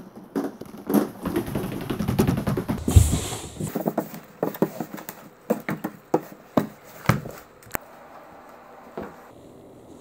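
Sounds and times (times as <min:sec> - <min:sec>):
balls bouncing on wooden floor: 0:00.4 - 0:04.8.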